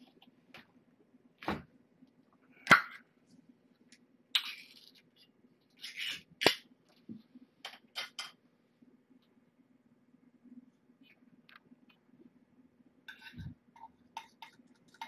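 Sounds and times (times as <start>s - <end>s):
faint low hum: 0.0s - 15.0s
spoon clicking and scraping bowl: 13.1s - 15.0s.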